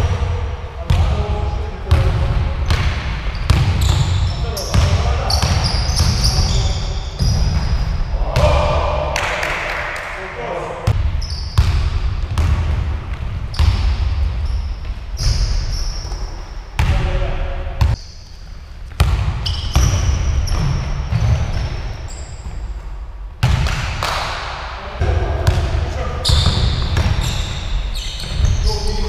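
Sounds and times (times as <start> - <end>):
sneakers squeaking on wood: 2.7 - 8.1, 11.2 - 11.7, 13.5 - 16.6, 19.0 - 22.8, 26.2 - 29.0.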